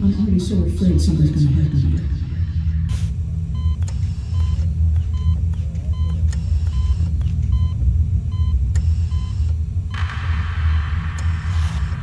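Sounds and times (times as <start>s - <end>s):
steady low rumble: 0.0s - 12.0s
patient monitor beeping: 3.5s - 9.6s.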